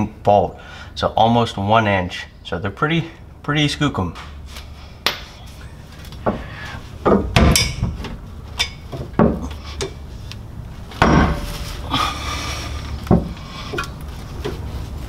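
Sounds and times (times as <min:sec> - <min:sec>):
metal rattle: 0:07.0 - 0:10.0, 0:10.9 - 0:11.9
steel bolts clanking on metal: 0:07.1 - 0:10.0.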